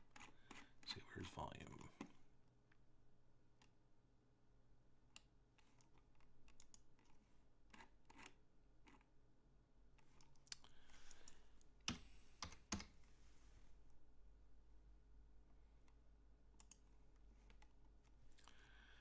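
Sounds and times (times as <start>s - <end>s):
typing on keyboard: 10.1s - 13.0s.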